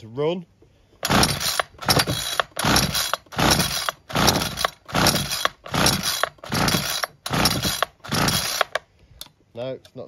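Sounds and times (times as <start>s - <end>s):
engine cranking: 1.0s - 8.8s
recoil starter cord pulls: 1.0s - 9.3s.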